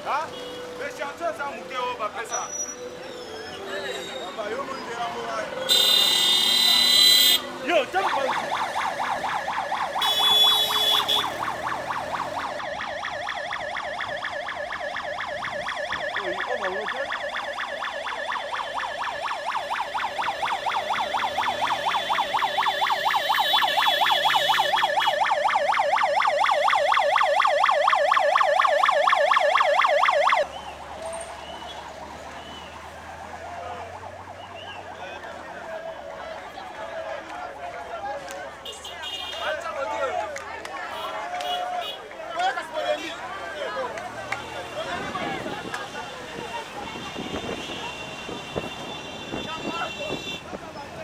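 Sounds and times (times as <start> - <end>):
outdoor background noise: 0.0 - 51.0
electronic siren warbling: 8.0 - 32.3.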